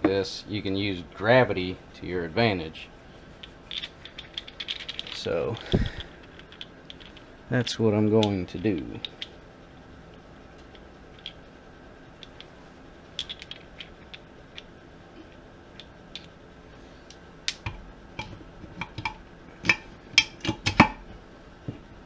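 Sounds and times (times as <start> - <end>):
metal gears clicking and knocking: 3.7 - 7.2, 13.2 - 14.7.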